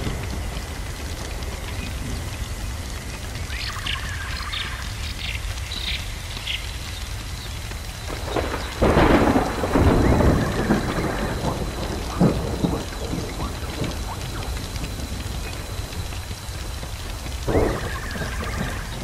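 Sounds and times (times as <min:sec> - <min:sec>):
thunder rolling: 0:00.0 - 0:05.6, 0:08.0 - 0:19.0
steady crackling hiss: 0:00.0 - 0:19.0.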